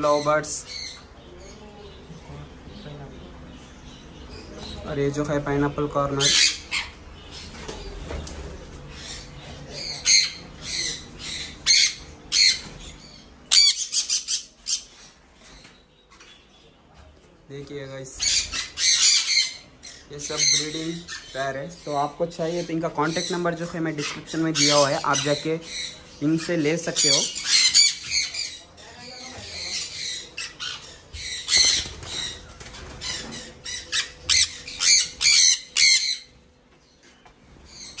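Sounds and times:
parrots squawking: 0:05.9 - 0:08.1, 0:08.7 - 0:16.5, 0:18.2 - 0:37.0, 0:37.6 - 0:38.0.

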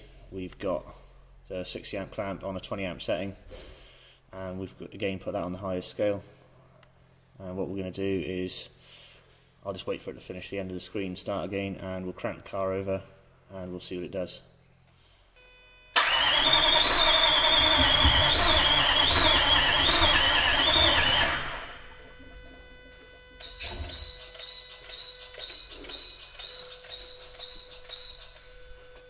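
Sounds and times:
engine cranking on starter motor: 0:16.0 - 0:22.0, 0:23.4 - 0:28.5
high whine: 0:17.2 - 0:29.0.

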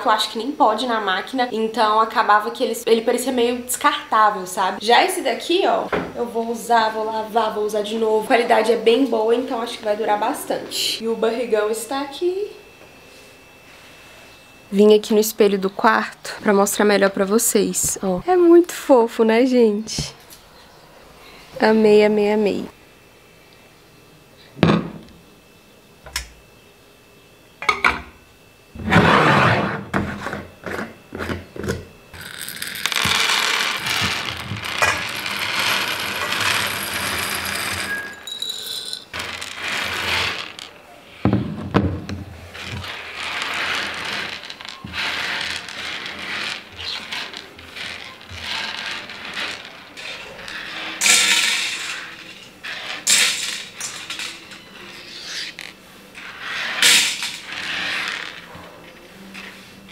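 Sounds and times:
beans sliding across wood: 0:32.2 - 0:40.7, 0:42.5 - 0:58.4
beans clattering into metal bowl: 0:32.2 - 0:40.8, 0:42.8 - 0:54.6, 0:55.5 - 0:58.4.

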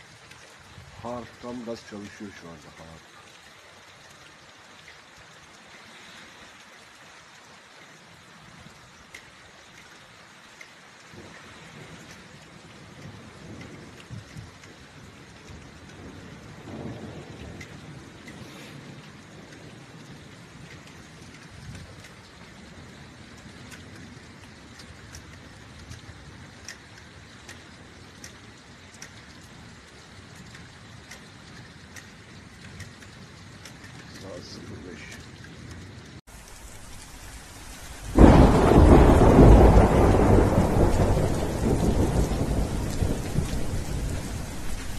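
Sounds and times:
steady rain falling: 0:00.0 - 0:44.9
drip ticks: 0:01.3 - 0:05.6, 0:08.6 - 0:18.4, 0:19.0 - 0:22.6, 0:23.2 - 0:36.2.

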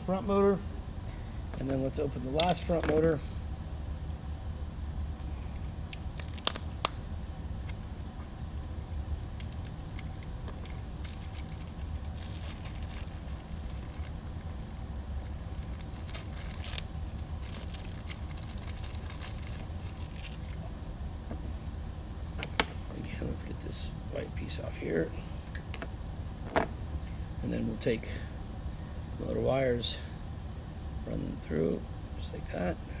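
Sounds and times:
steady low hum: 0:00.0 - 0:33.0
plastic bag crinkling: 0:09.2 - 0:20.7.

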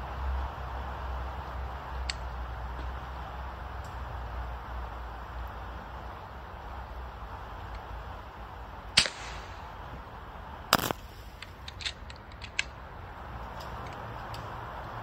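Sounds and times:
air rifle shots: 0:08.9 - 0:10.1, 0:10.7 - 0:12.0
pellet smacking ice: 0:10.8 - 0:11.2.

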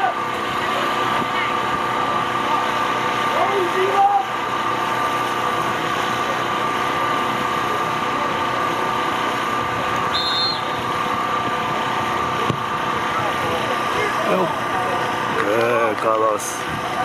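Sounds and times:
machine hum: 0:00.0 - 0:17.0
short high whistle blast: 0:10.1 - 0:10.8
faint voices: 0:10.8 - 0:17.0.

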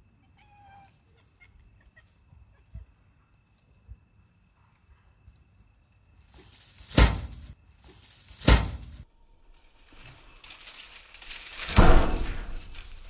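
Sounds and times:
sudden thumps: 0:06.9 - 0:07.6, 0:08.4 - 0:09.0.

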